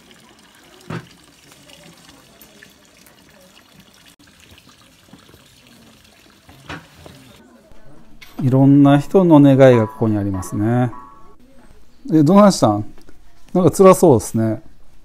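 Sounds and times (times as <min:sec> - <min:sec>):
running water: 0:00.0 - 0:07.4.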